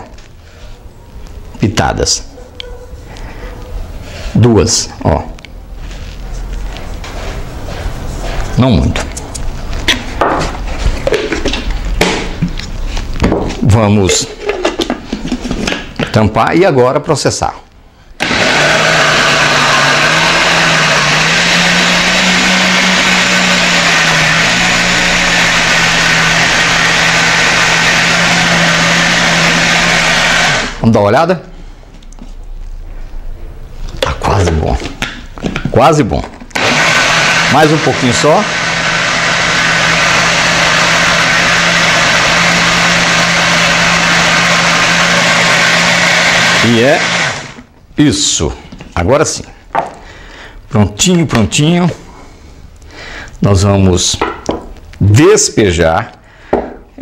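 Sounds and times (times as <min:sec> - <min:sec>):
blender running: 0:18.2 - 0:30.8, 0:36.5 - 0:47.7.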